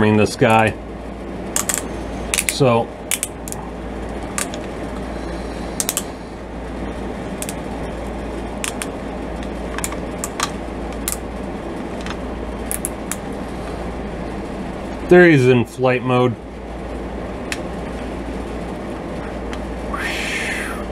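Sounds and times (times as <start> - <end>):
steady low hum: 0.0 - 20.9
plastic toy parts clicking: 1.6 - 1.8, 2.4 - 3.6, 5.8 - 6.0, 8.6 - 8.9, 12.7 - 13.2.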